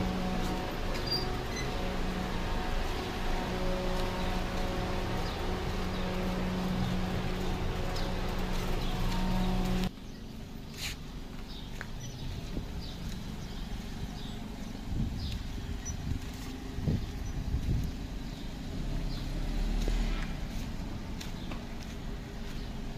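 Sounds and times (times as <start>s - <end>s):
mechanical hum: 0.0s - 10.2s
car engine rumble: 0.0s - 22.9s.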